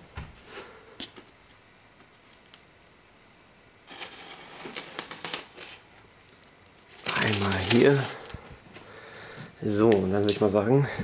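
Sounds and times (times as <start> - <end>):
knife cutting packing tape: 3.9 - 5.8, 7.0 - 8.3.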